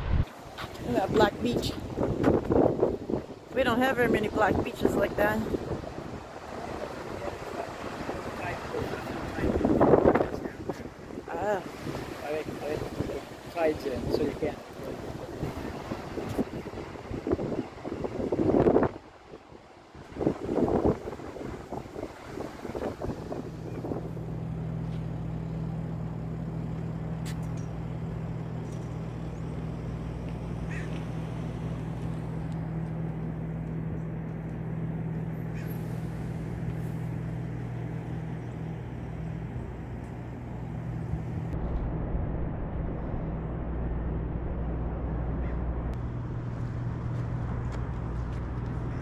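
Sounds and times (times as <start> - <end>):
wind buffeting microphone: 0.0 - 25.4.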